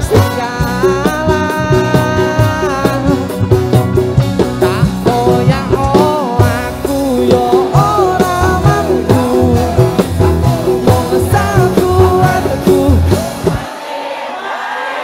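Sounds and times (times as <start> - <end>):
man singing lead vocal: 0.0 - 13.9
pop band playing: 0.0 - 14.0
crowd singing along: 4.8 - 15.0.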